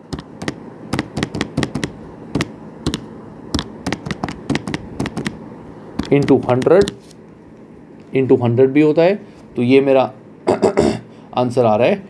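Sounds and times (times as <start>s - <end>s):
calculator keys clicking: 0.1s - 3.0s, 3.6s - 5.4s, 6.0s - 7.0s.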